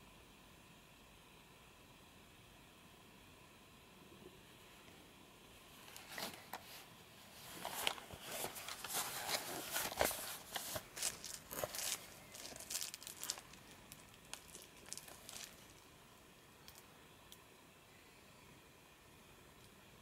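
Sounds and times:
cardboard box rustling: 6.0s - 13.8s, 14.4s - 15.8s.

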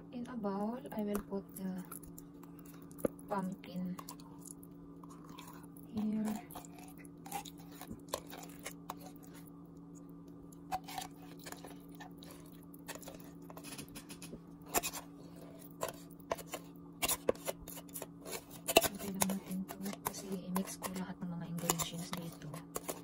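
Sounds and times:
steady low hum: 0.0s - 23.0s
spoon scraping a glass bowl: 10.7s - 21.0s.

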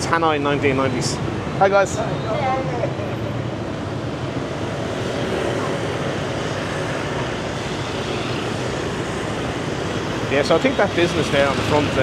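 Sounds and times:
scooters and cars passing: 0.0s - 12.0s.

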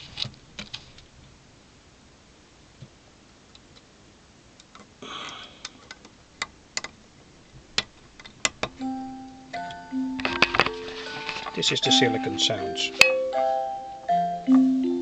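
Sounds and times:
scraping rustle: 10.3s - 11.8s.

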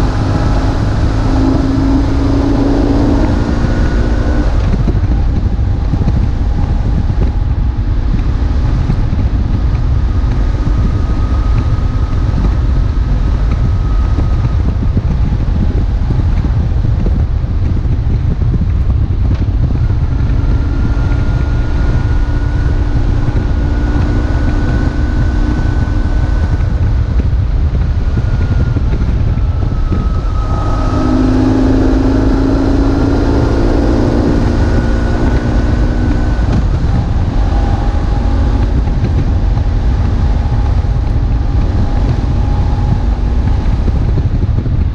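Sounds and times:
motorcycle engine running: 0.0s - 44.9s
wind buffeting on microphone: 0.0s - 44.9s.

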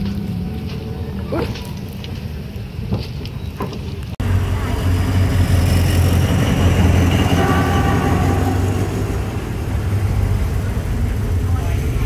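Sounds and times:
diesel train engine running: 4.2s - 12.0s.

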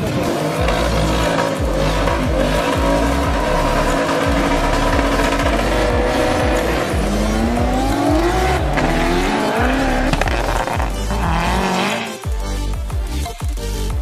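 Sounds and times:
racing car accelerating: 0.0s - 12.2s
electronic music with steady beat: 0.0s - 14.0s.

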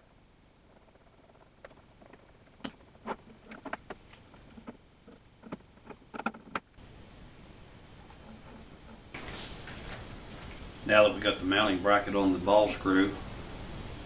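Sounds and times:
metal parts clicking and tapping: 0.7s - 6.8s, 8.0s - 9.1s.

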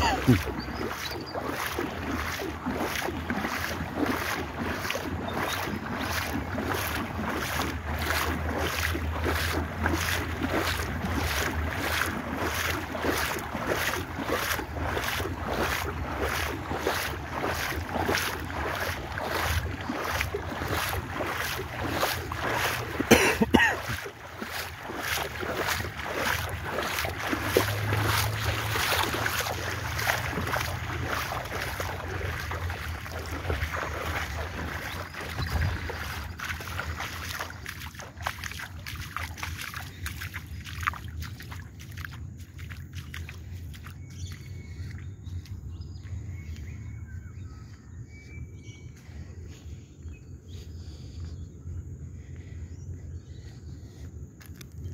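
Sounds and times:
rushing water: 0.0s - 44.9s
low motor hum: 0.0s - 54.9s
wind on microphone: 32.2s - 36.8s.

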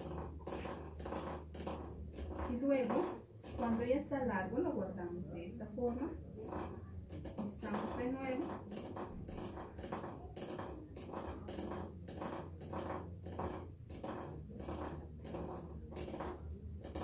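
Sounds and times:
spindle scraping in bowl: 0.0s - 4.1s, 5.9s - 17.0s.

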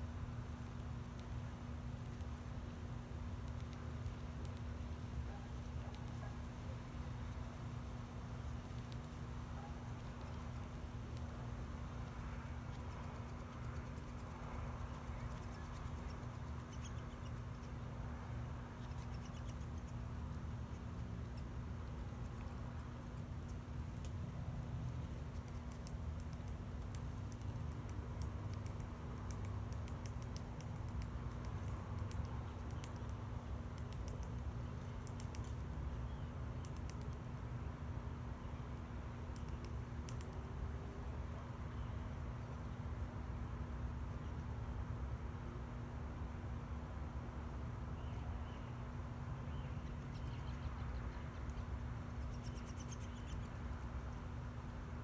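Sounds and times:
low steady rumble: 0.0s - 55.0s
woodpecker calling: 15.0s - 17.8s, 18.8s - 20.0s, 49.5s - 53.5s
woodpecker tapping on bark: 24.9s - 35.7s.

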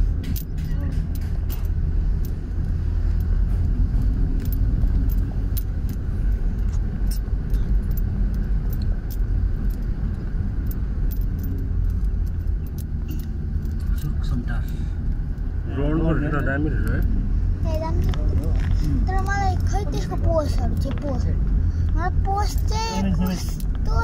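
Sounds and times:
engine and tyre rumble: 0.0s - 24.0s
small ticks and rattles: 0.2s - 15.5s.

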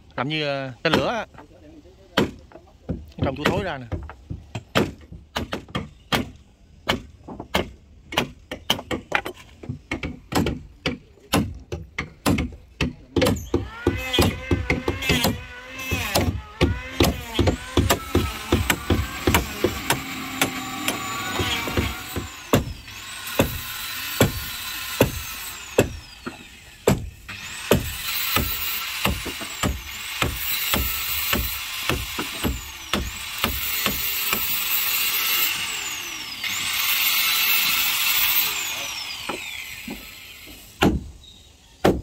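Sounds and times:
hammer blows on wooden planks: 2.1s - 35.7s
high squeaks and creaks: 16.8s - 24.0s.

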